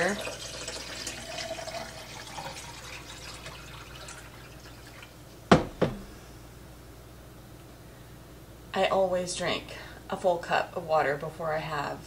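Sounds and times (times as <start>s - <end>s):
water trickling into a glass: 0.0s - 5.2s
hard object knocks: 5.5s - 6.1s.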